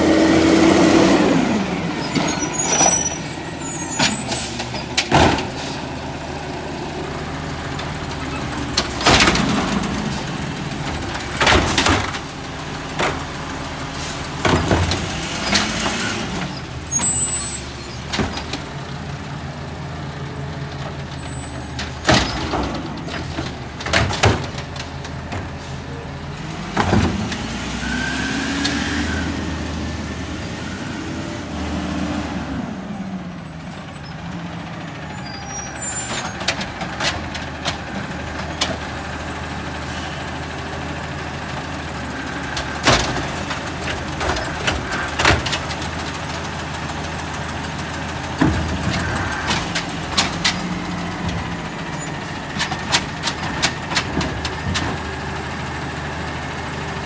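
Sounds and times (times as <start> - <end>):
garbage truck engine revving: 0.0 - 57.0
carts banging and clanking: 2.0 - 5.8, 7.8 - 13.4, 14.4 - 18.7, 20.8 - 25.7, 26.4 - 27.7, 42.4 - 46.0, 48.2 - 55.3.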